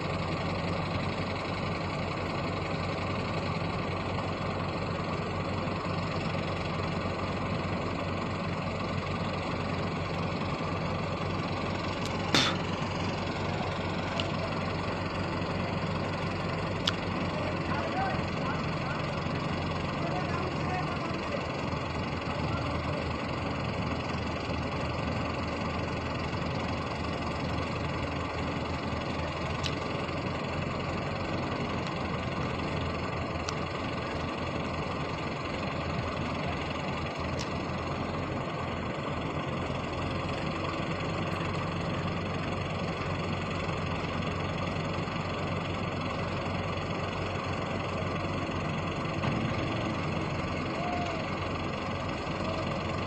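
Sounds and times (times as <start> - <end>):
diesel engine running: 0.0 - 53.0
faint clicks: 16.8 - 17.0, 29.6 - 29.8.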